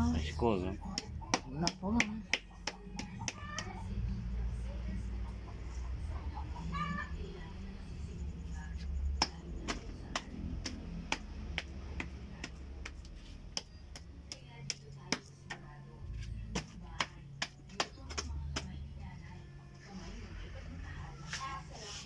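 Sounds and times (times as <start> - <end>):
hands slapping clay: 0.9 - 3.8, 9.2 - 15.6, 16.5 - 18.8.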